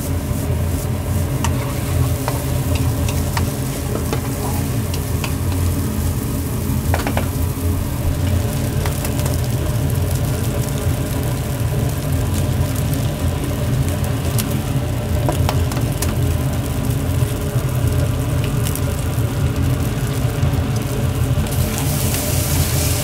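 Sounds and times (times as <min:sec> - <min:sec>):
noodles sizzling in a pan: 0:00.0 - 0:23.0
low rumble: 0:01.0 - 0:11.4.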